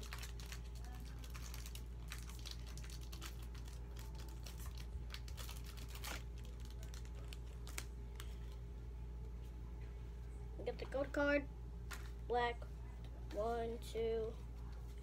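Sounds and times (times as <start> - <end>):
foil wrapper crinkling: 0.0 - 8.6.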